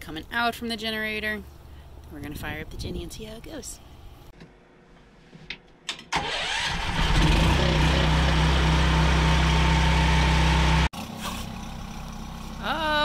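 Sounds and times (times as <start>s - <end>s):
generator engine running: 6.2s - 12.8s.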